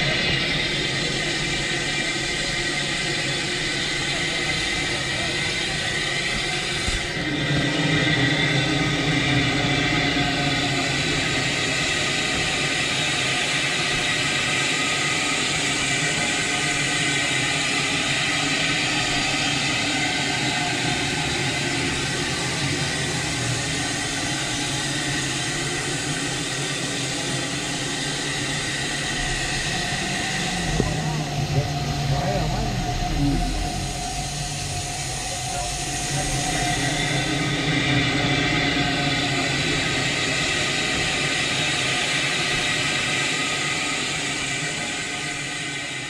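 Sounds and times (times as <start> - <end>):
steam hissing: 0.0 - 46.0
low hum: 20.1 - 41.2.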